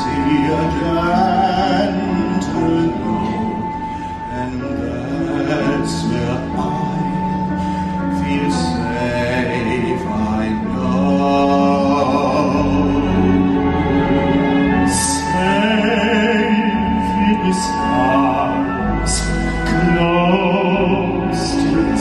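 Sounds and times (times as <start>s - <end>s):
backing music: 0.0s - 22.0s
two singers performing a duet: 0.0s - 22.0s.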